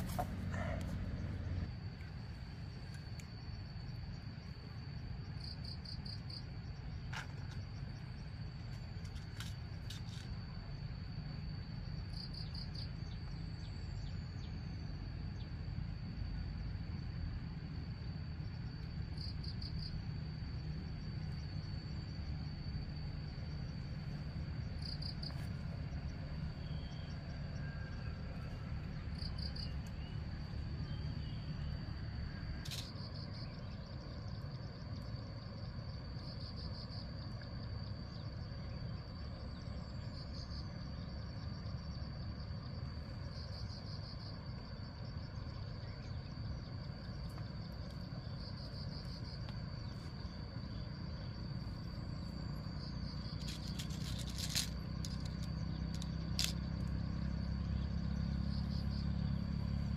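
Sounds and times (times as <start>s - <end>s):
insect pulsed trill: 0.0s - 59.9s
insects shrilling: 48.2s - 59.8s.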